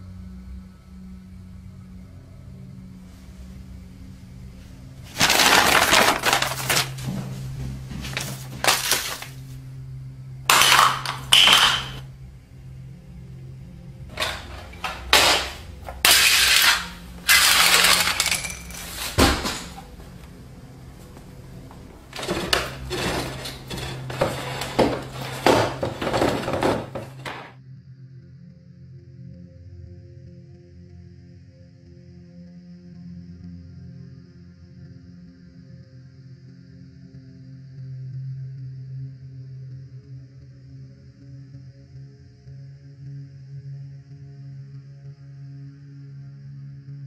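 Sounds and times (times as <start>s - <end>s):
papers and objects rustling and clattering: 5.0s - 9.5s, 10.5s - 12.0s, 14.1s - 27.6s.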